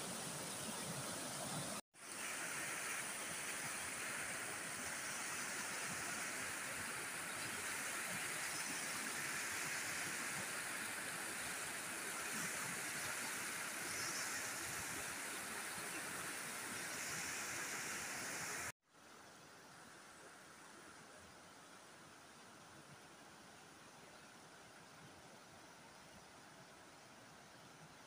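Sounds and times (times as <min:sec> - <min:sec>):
water rushing over spillway: 0:00.0 - 0:18.7.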